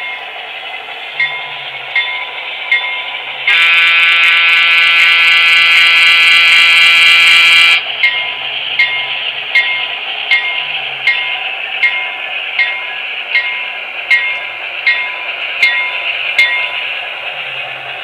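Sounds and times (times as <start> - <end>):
locomotive bell ringing: 0.0 - 0.5, 1.1 - 18.0
multi-chime air horn blast: 3.5 - 7.8.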